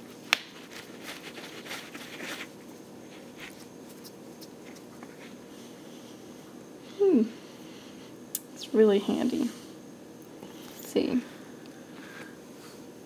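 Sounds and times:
soft rustle: 0:00.6 - 0:05.4.

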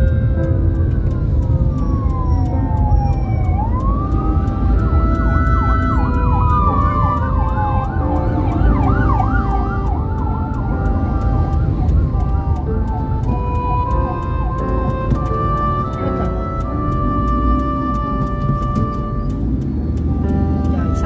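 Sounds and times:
road and engine rumble: 0:00.0 - 0:21.0
electronic siren wailing and yelping: 0:00.7 - 0:19.2.

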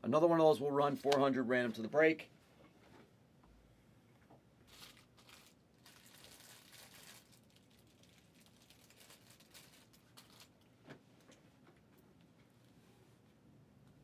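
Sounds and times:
plastic or paper crinkling: 0:04.6 - 0:10.7.

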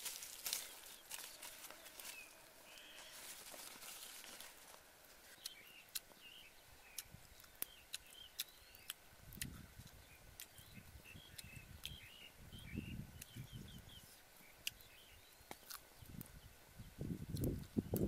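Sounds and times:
high bird chirps: 0:10.1 - 0:15.5.

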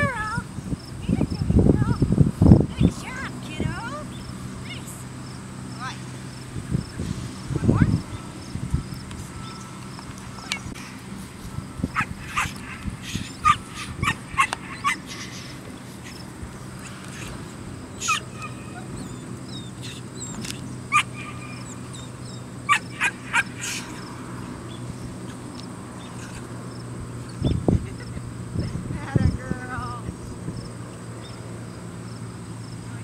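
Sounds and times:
puppy barking and yipping: 0:11.9 - 0:24.1.

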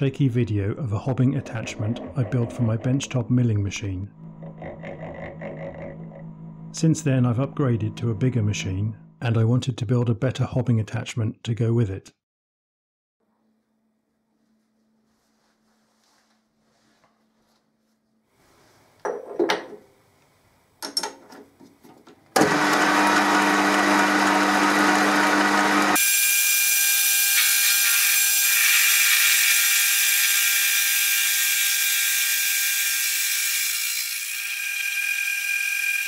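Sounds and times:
lathe running hum: 0:22.4 - 0:27.0, 0:29.7 - 0:36.0.

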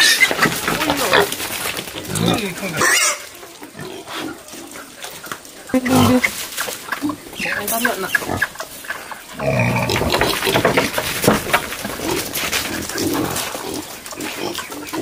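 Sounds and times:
scuffling and knocking: 0:00.0 - 0:02.7, 0:09.8 - 0:14.0
wild boars grunting: 0:00.0 - 0:06.4, 0:07.0 - 0:15.0.

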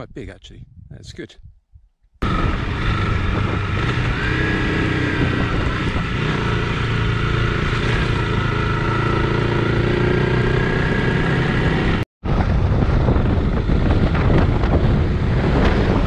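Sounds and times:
wind rushing over microphone: 0:00.0 - 0:16.0
motorcycle engine running: 0:02.2 - 0:16.0.

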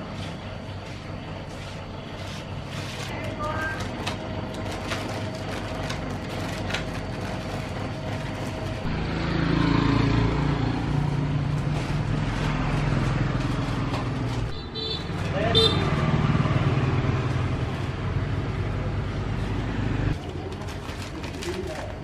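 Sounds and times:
motor engine running: 0:04.1 - 0:14.5.

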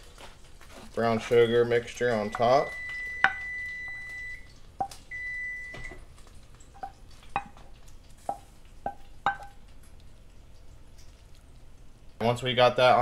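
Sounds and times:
utensil knocking against a pan: 0:08.3 - 0:09.6.

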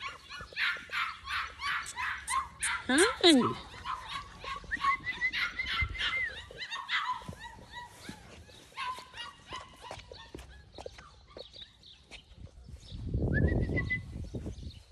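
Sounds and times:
puppies whimpering: 0:00.0 - 0:11.9.

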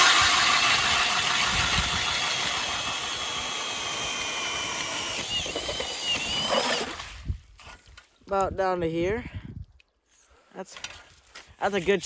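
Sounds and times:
cordless drill motor whining: 0:00.0 - 0:07.1.

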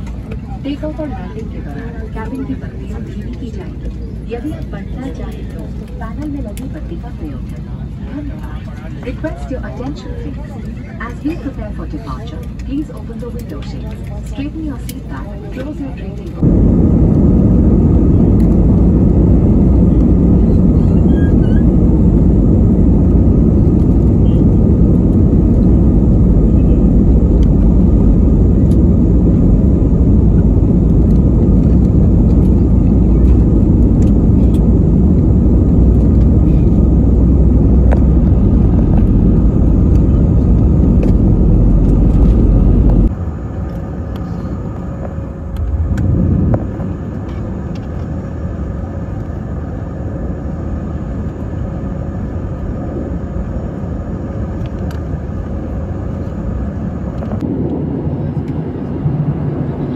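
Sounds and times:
jet engines at takeoff power: 0:00.0 - 0:59.9
wheels rumbling on runway: 0:00.0 - 0:59.9.

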